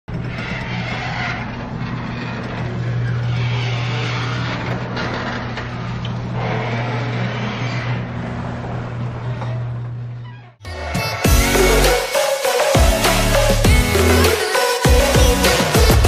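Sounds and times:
garage door opener motor hum: 0.1s - 10.6s
garage door rattling: 0.1s - 10.6s.

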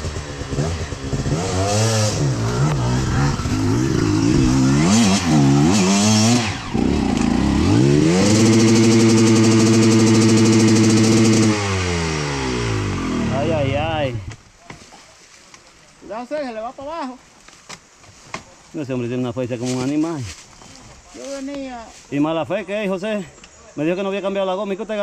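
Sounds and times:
dirt bike engine revving: 0.0s - 14.3s.

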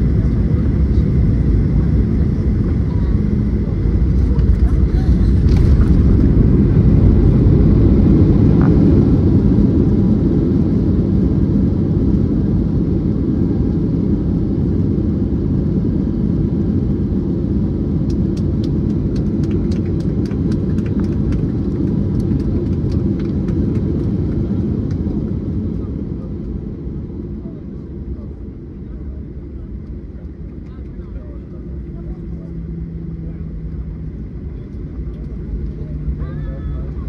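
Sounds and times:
jet engines low rumble: 0.0s - 37.0s.

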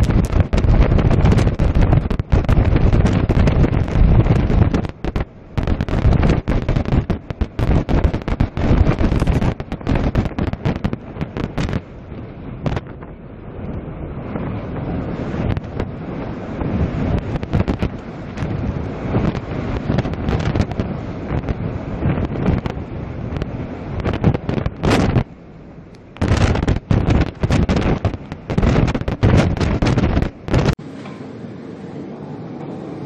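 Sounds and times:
wind buffeting microphone: 0.0s - 30.8s
rush of wind and sea: 0.0s - 33.0s.

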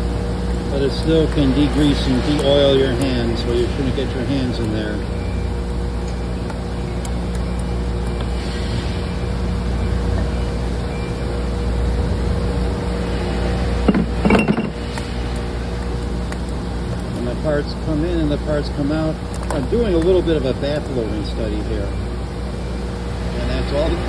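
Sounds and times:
low machine hum: 0.0s - 24.0s
metal clinks and knocks: 13.8s - 14.8s.

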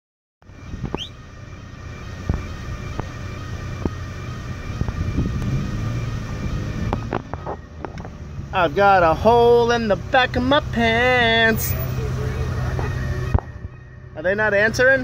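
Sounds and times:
car engine idling: 0.4s - 15.0s
brief rising chirp: 0.8s - 1.2s.

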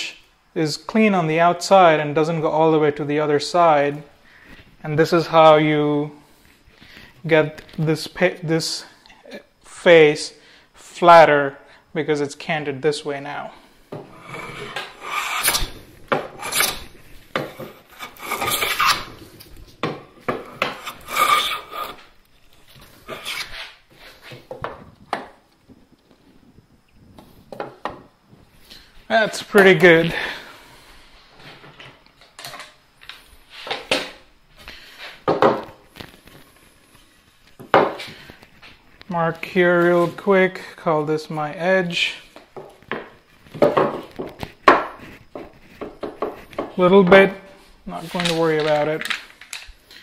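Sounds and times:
hand plane cutting wood: 14.1s - 16.8s, 17.4s - 19.2s, 20.4s - 22.1s, 23.1s - 23.7s
wood knocking on wood: 42.6s - 46.8s.

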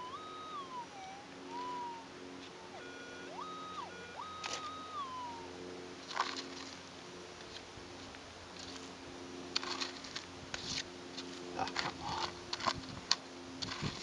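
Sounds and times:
metal detector humming: 0.0s - 14.0s
gravel and stones scraped: 9.5s - 14.0s.

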